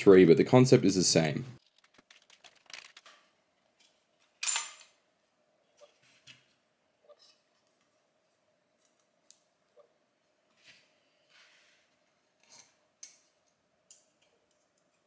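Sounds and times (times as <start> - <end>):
clicks and rattles of parts: 1.6 - 5.0.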